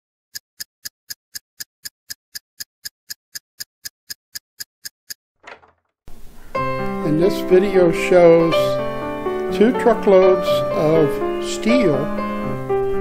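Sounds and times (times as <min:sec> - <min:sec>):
sharp evenly spaced ticks: 0:00.3 - 0:05.2.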